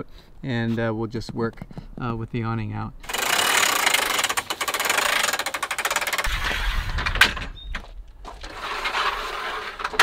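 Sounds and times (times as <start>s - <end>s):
awning roller clicking: 3.0s - 7.6s, 8.3s - 10.0s.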